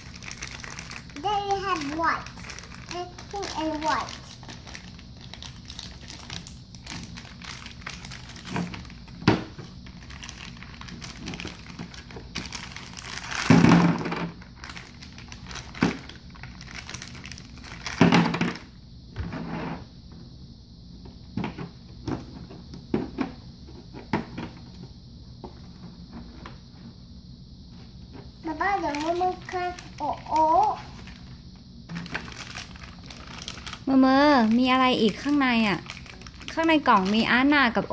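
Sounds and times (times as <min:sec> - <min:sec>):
plastic packaging crinkling: 0:00.0 - 0:18.7, 0:28.5 - 0:37.9.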